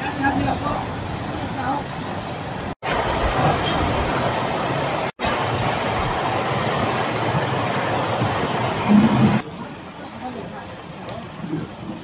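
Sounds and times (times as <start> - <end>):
heavy rain pouring: 0.0 - 12.0.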